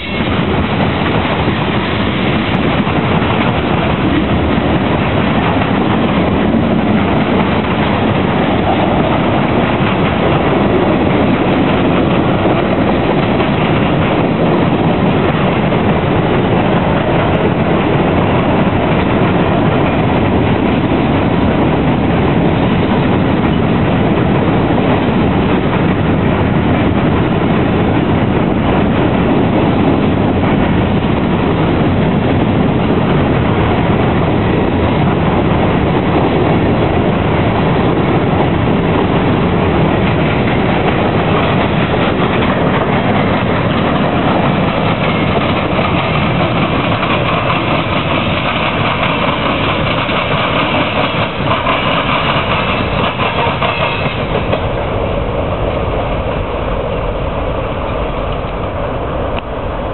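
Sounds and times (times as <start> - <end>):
ringing from train wheels: 0.0 - 4.0, 39.8 - 55.0
train wheels clattering on rails: 0.0 - 59.9.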